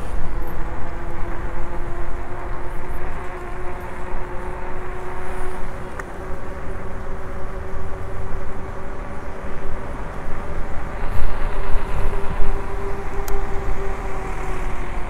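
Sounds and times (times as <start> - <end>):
bike tyre noise: 0.0 - 15.0
electric motor whine: 0.0 - 15.0
wind rumble on microphone: 0.0 - 15.0.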